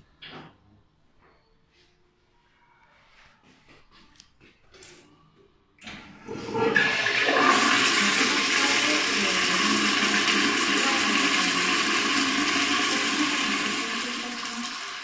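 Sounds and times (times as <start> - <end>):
toilet flushing: 5.8 - 15.0.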